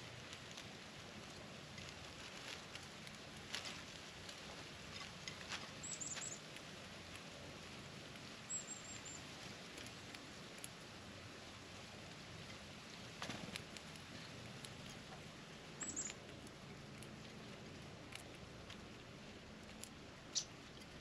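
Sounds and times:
animals picking at peanuts on plate: 0.0 - 21.0
small bird chirping: 5.8 - 6.4, 8.5 - 9.2, 15.8 - 16.4, 20.3 - 21.0.

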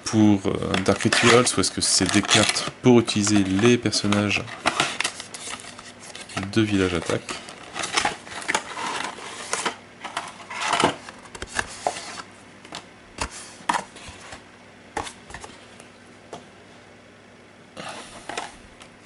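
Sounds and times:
cards rustling: 0.5 - 14.4.

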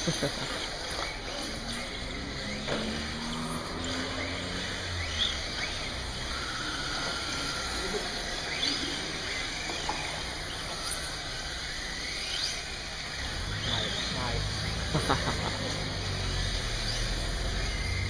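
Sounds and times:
rc car motors whining: 0.0 - 18.0.

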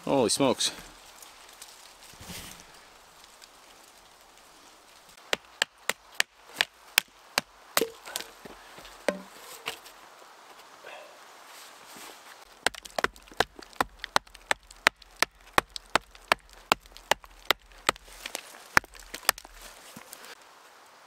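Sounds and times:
sharp knocks on wood: 9.1 - 9.3.

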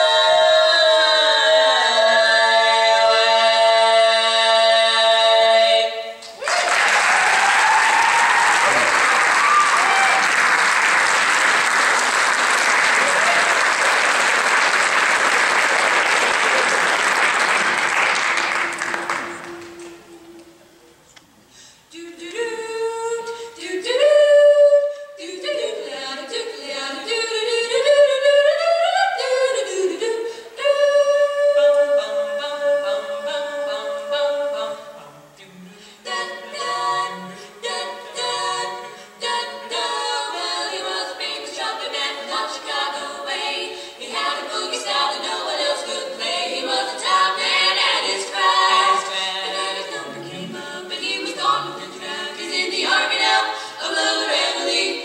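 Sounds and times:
women singing a cappella harmony: 0.0 - 6.5, 21.8 - 55.0.

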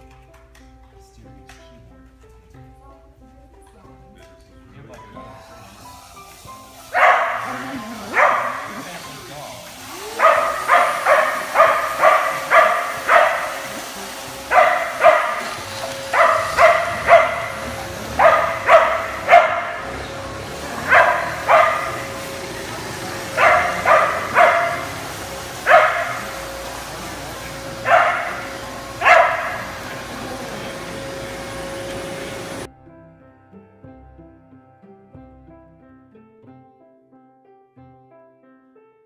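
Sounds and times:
dog barking: 6.9 - 9.3, 9.9 - 32.7
steady hum: 7.1 - 32.7.

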